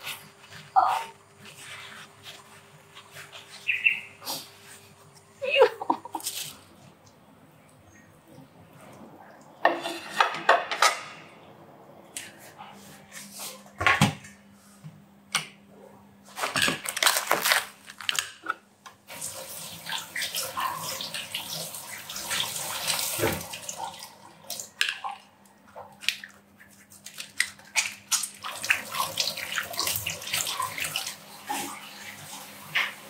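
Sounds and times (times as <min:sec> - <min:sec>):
tap water running into a sink: 0:19.1 - 0:25.2, 0:28.2 - 0:33.0
water splashing over a colander: 0:19.1 - 0:33.0.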